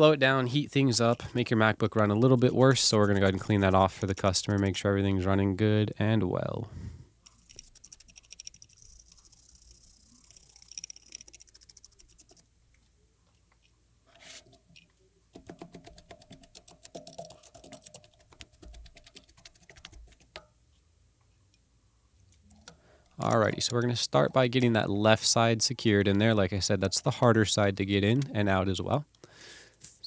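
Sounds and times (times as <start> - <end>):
brush scrubbing circuit board: 0.8 - 5.1, 7.3 - 12.4, 15.4 - 20.4.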